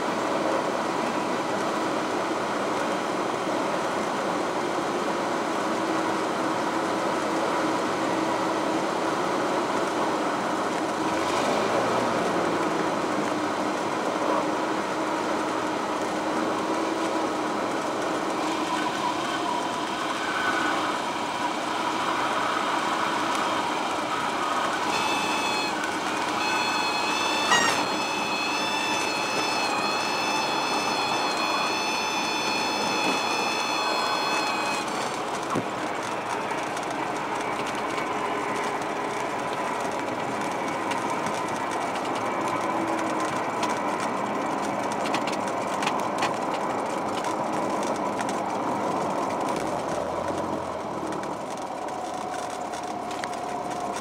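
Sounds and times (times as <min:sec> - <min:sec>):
high whistling tone: 0:24.4 - 0:35.1.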